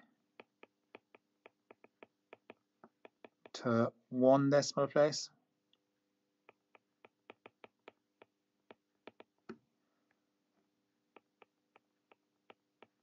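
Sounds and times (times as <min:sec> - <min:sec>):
stylus tapping on tablet screen: 0:00.3 - 0:03.6, 0:06.4 - 0:09.7, 0:11.1 - 0:13.0.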